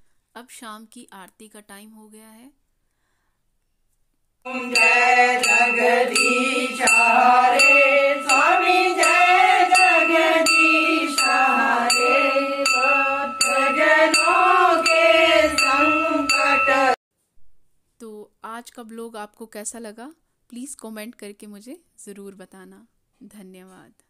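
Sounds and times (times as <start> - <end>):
bell ringing: 4.5 - 17.0
people singing a devotional melody: 4.5 - 17.0.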